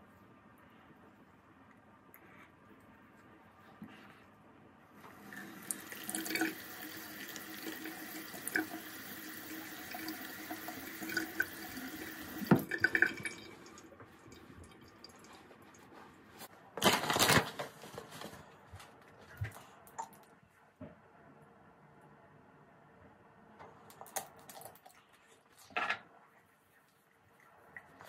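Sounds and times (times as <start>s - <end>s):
sink tap running: 5.1s - 14.8s.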